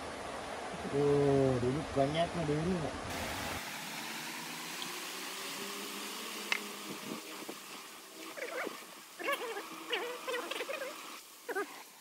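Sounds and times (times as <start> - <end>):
animal crying: 8.3 - 11.8.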